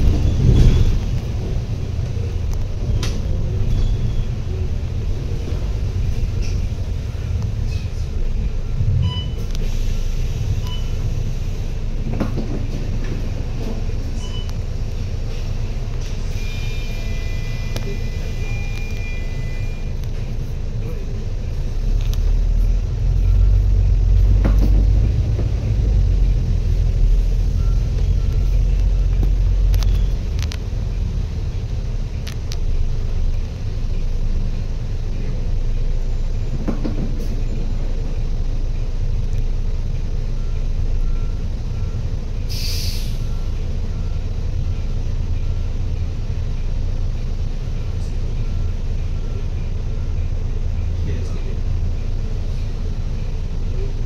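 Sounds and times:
motor vehicle rumbling: 0.0 - 54.0
short hiss: 42.5 - 43.3.

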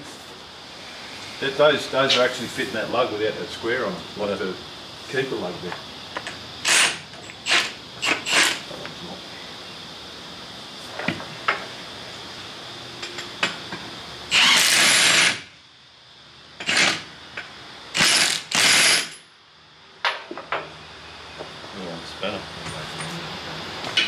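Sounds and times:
impact wrench bursts: 6.6 - 8.6, 14.3 - 15.6, 16.6 - 17.1, 17.9 - 19.3.

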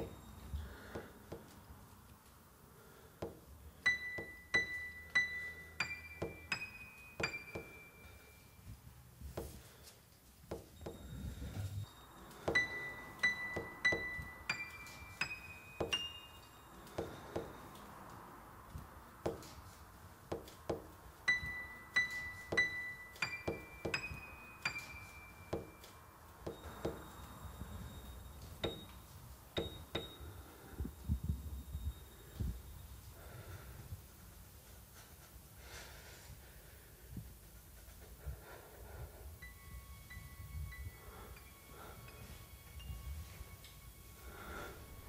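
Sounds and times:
footsteps on stairs: 0.8 - 1.7, 3.2 - 3.5, 6.2 - 6.6, 7.2 - 7.8, 9.2 - 11.9, 12.5 - 16.0, 16.8 - 17.9, 18.7 - 27.2
high piano notes: 3.2 - 9.6, 10.5 - 30.7.

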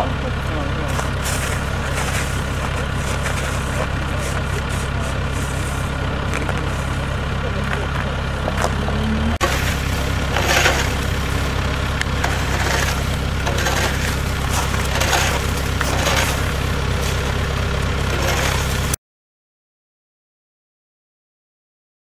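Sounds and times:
engine droning: 0.0 - 19.0
ice crust crunching: 0.9 - 7.2, 9.4 - 19.0.

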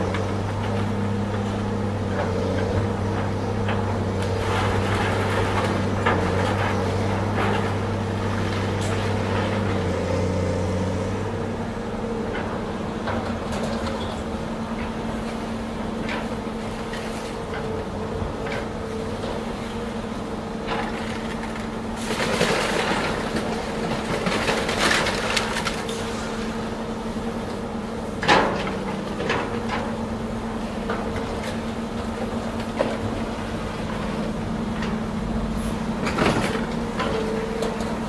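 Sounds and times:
diesel excavator engine: 0.0 - 38.0.

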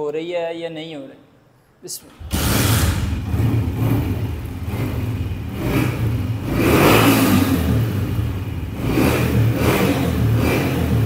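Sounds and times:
motorcycle engine running: 2.2 - 11.0.

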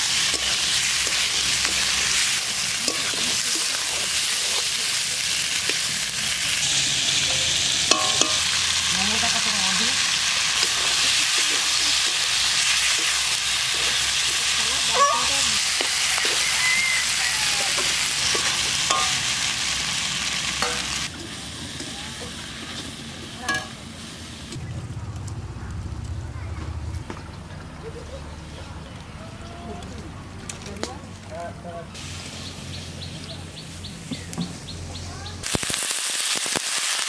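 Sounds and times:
metal spatula scraping a pan: 0.0 - 4.7, 17.6 - 19.4
oysters sizzling in a wok: 0.0 - 26.0, 32.0 - 37.0.

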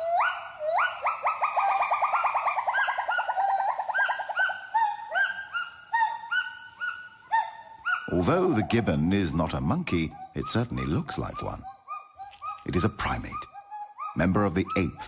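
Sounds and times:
gibbon whooping and hooting: 0.0 - 8.6.

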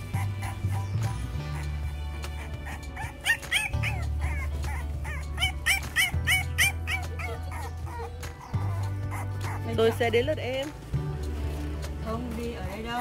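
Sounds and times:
puppy yelping and whimpering: 0.0 - 10.0
background music: 0.0 - 13.0.

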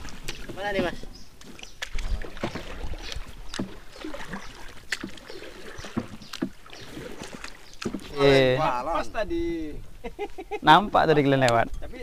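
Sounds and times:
light water sounds: 0.0 - 8.7.

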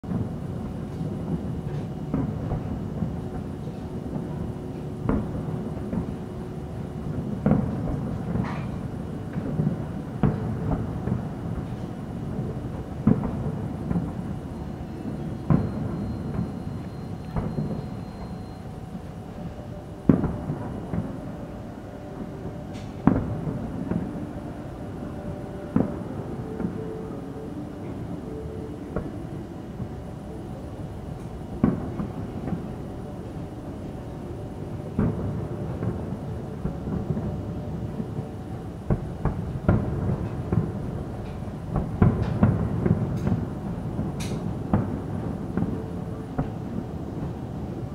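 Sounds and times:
firework booms rumbling: 0.1 - 28.1, 31.4 - 34.0, 34.6 - 47.9
sharp loud firework bang: 15.0 - 18.4, 20.1 - 21.2, 31.6 - 32.7.

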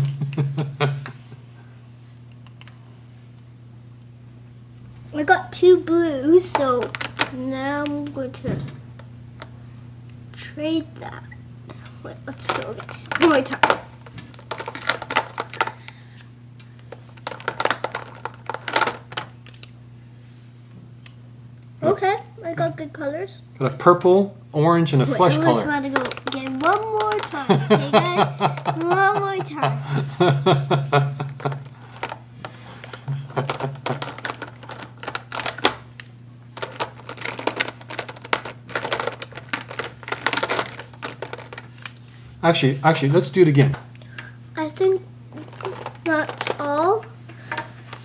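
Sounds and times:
faint low hum: 0.0 - 48.0
plastic markers clattering: 12.3 - 15.8, 17.2 - 19.7, 25.7 - 27.4, 32.8 - 35.8, 36.6 - 42.0, 45.4 - 48.0.

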